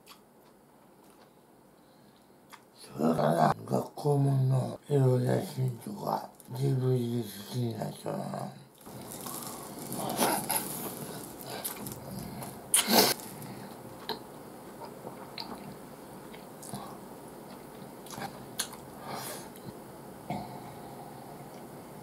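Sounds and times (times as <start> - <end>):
person chewing noodles: 8.8 - 19.8
noisy mouth sound: 8.9 - 14.2.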